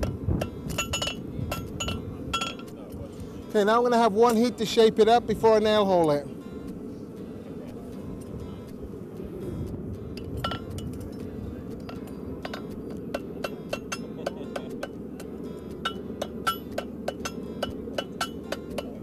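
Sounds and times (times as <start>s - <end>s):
hammer striking horseshoe on anvil: 0.0s - 2.8s, 11.8s - 19.0s.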